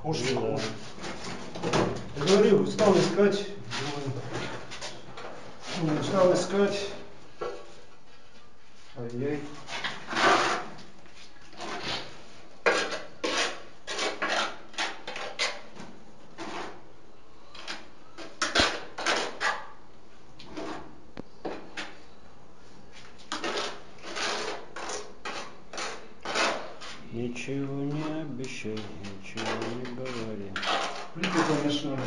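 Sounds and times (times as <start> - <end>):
trowel scraping adhesive: 9.7 - 10.8, 11.5 - 15.7, 17.6 - 19.7, 23.3 - 27.0, 27.9 - 32.0.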